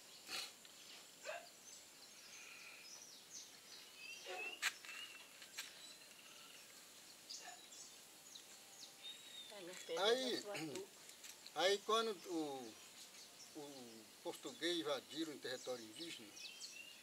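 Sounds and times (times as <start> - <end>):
bird chirps and calls: 0.1 - 6.6.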